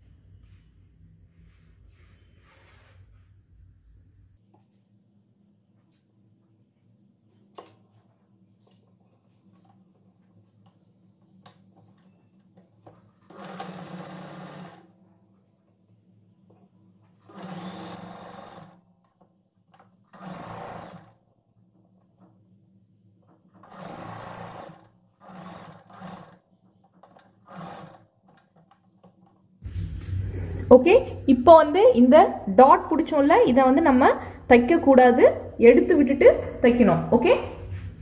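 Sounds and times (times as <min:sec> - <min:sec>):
sewing machine running: 0:11.4 - 0:15.2, 0:17.0 - 0:22.4, 0:23.2 - 0:29.4.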